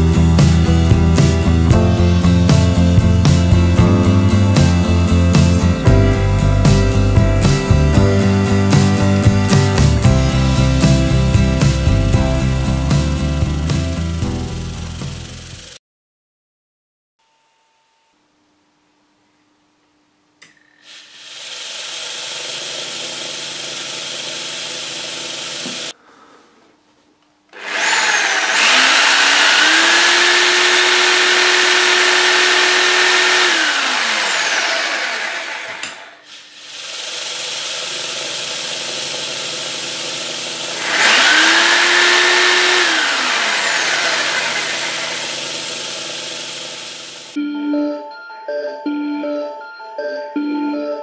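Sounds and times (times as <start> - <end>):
jigsaw motor whining: 12.4 - 15.8, 20.8 - 26.0, 27.5 - 47.4.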